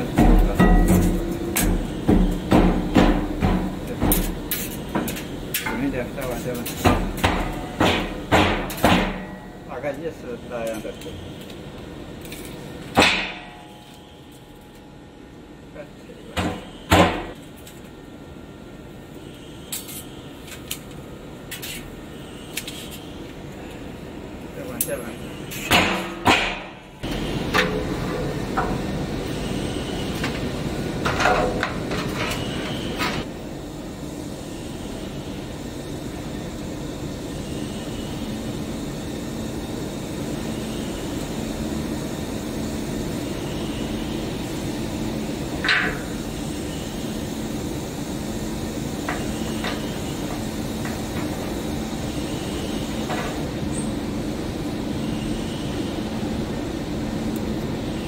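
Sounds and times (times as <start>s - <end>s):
machinery humming: 0.0s - 58.0s.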